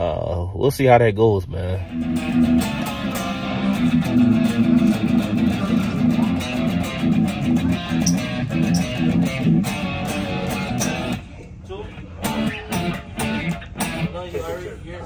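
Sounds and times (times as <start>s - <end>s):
electric guitar picked notes: 1.8s - 11.2s, 12.2s - 14.1s.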